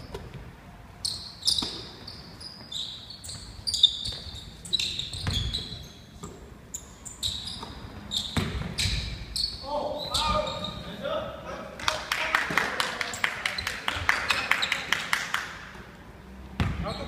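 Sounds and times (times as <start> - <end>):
sneakers squeaking on floor: 0.0 - 11.0, 13.1 - 14.9, 16.5 - 17.0.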